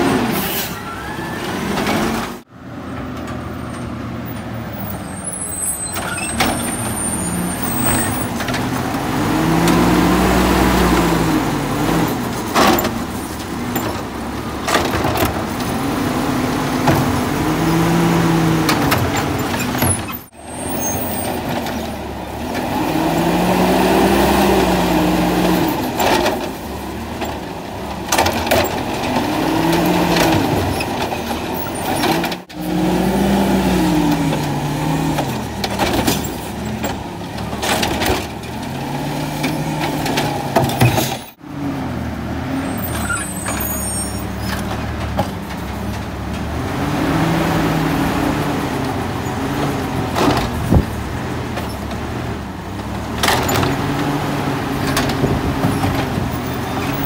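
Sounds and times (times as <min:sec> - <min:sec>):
garbage truck engine revving: 0:00.0 - 0:57.0
cart clanking against metal: 0:10.6 - 0:17.5, 0:25.3 - 0:32.7, 0:34.0 - 0:41.4, 0:48.4 - 0:57.0.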